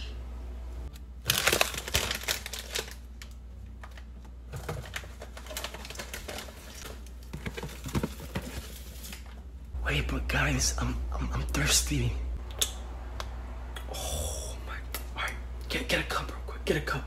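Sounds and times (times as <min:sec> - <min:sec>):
chip bag crinkling: 0:01.2 - 0:09.4.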